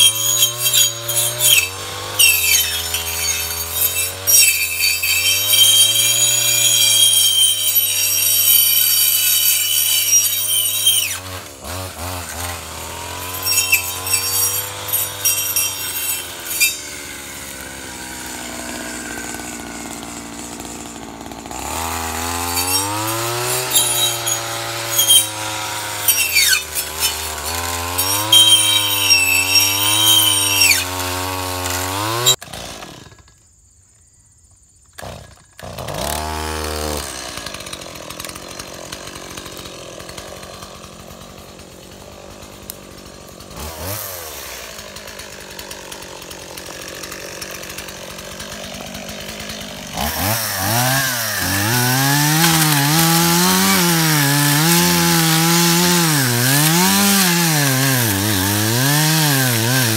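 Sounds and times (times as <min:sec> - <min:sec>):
brush cutter running: 0:00.0 - 0:33.2, 0:35.0 - 0:59.9
chainsaw cutting through brush: 0:00.0 - 0:33.4, 0:35.0 - 0:59.9
chainsaw idling: 0:11.1 - 0:33.2, 0:35.2 - 0:59.9.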